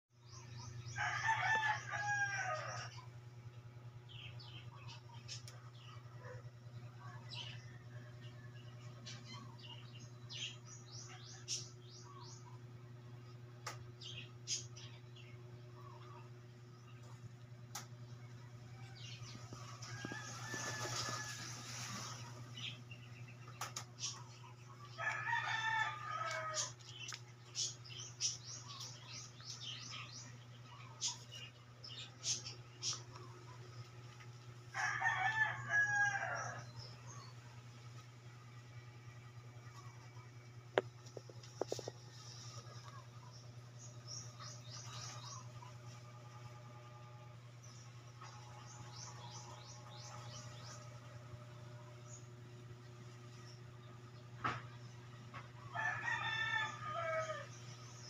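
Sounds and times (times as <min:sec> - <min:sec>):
steady low hum: 0:00.1 - 0:58.0
rooster crowing: 0:00.9 - 0:03.1, 0:18.5 - 0:21.9, 0:24.9 - 0:26.8, 0:34.7 - 0:36.9, 0:55.7 - 0:57.6.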